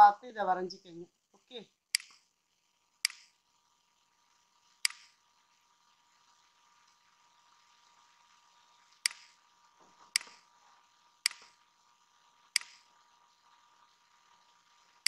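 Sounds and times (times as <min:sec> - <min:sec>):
computer mouse button clicks: 0:12.6 - 0:12.8.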